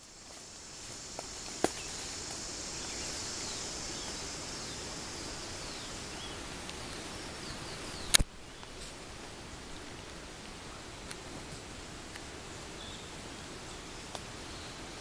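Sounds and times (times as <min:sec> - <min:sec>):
high insect chorus: 0:00.0 - 0:15.0
faint chirps: 0:00.7 - 0:08.9.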